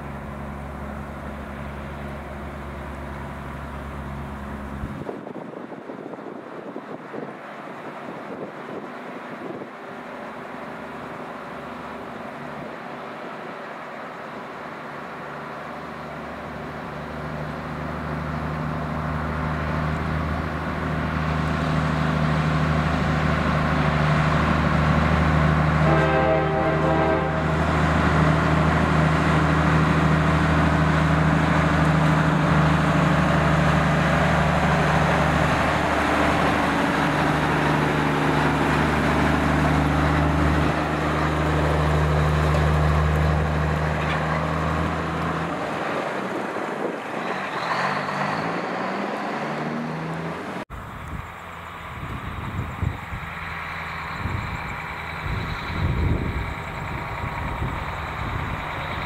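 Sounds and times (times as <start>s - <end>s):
truck diesel engine running: 0.0s - 59.0s
air horn blast: 25.8s - 27.7s.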